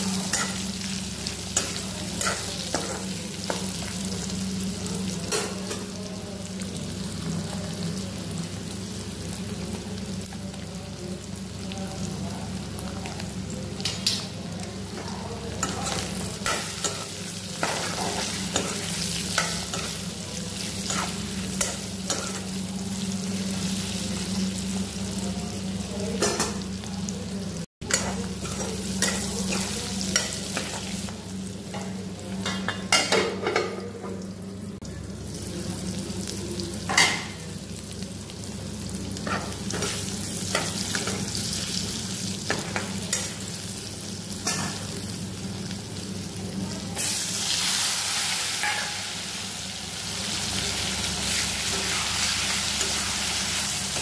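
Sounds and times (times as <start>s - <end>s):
meat sizzling in oil: 0.0s - 11.7s, 35.0s - 54.0s.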